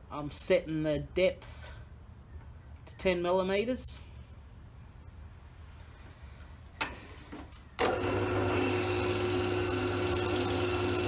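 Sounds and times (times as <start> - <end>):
drill press motor humming: 7.8 - 11.0.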